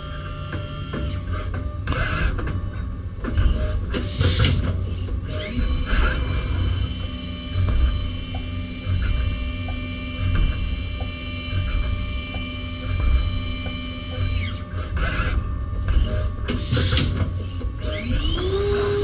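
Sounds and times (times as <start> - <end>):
machine low rumble: 0.0 - 19.0
high spindle whine: 4.8 - 19.0.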